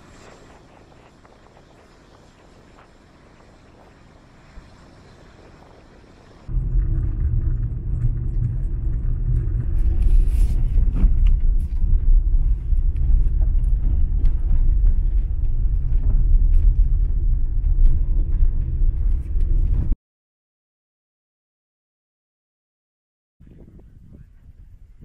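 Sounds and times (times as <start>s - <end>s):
car driving rumble: 6.5s - 20.0s.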